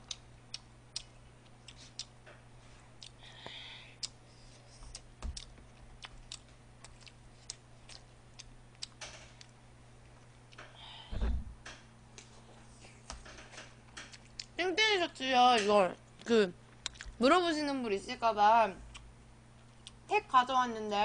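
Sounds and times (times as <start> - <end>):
faint steady hum: 0.0 - 21.0
low thump: 11.1 - 11.6.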